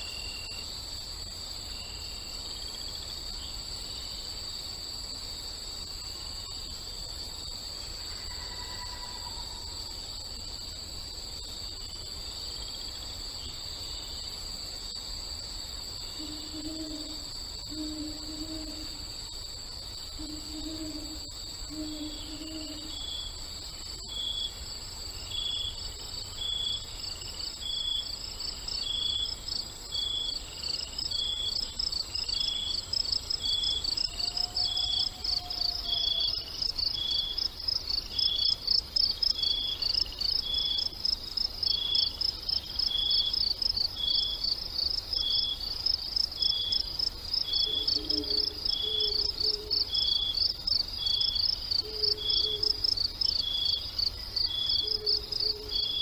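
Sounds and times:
crickets chirping: 0.0 - 56.0
high steady insect trill: 0.0 - 56.0
repeating insect chirp: 0.0 - 56.0.

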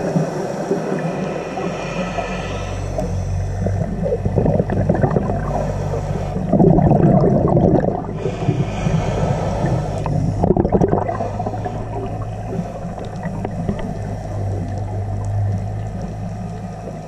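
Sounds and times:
regulator inhale hiss: 0.0 - 4.0, 5.4 - 6.7, 8.1 - 10.5, 11.1 - 13.0
exhaled bubbles gurgling: 0.0 - 17.0.

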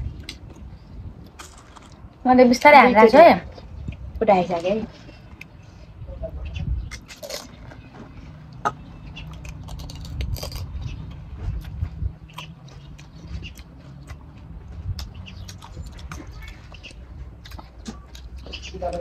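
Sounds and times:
crisp shells crunching when chewed: 0.2 - 2.1, 6.9 - 7.8, 8.5 - 18.7.

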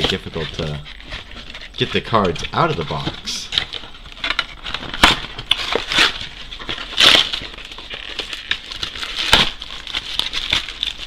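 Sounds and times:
cardboard ripping and crunching: 0.0 - 11.0
rustling: 0.0 - 11.0.

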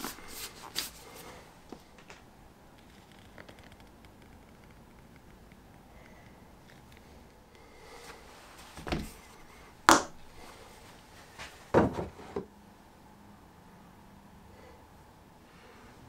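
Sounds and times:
tools knocking on workbench: 11.7 - 12.5.

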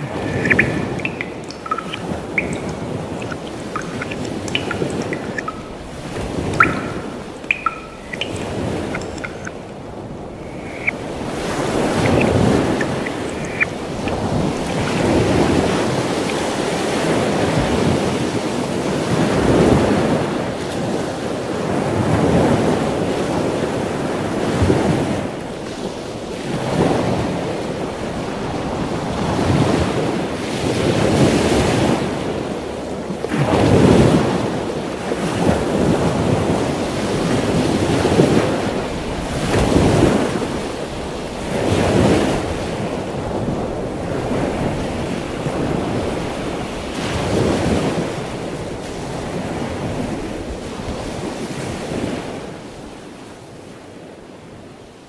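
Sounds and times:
wind on microphone: 0.0 - 18.2
sea surf washing in: 0.0 - 18.5.

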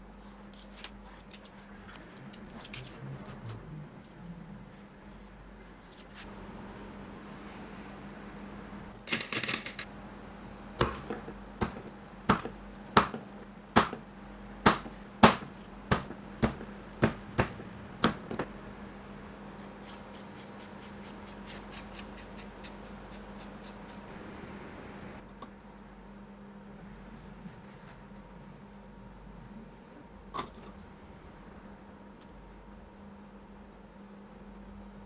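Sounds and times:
scratchy handling noise: 0.2 - 3.5.

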